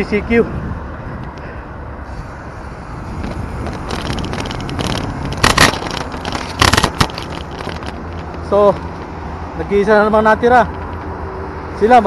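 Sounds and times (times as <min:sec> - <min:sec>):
wind rumble: 0:00.0 - 0:09.8
bicycle rolling on road: 0:00.0 - 0:12.0
camera knocks and rubs: 0:03.2 - 0:09.2.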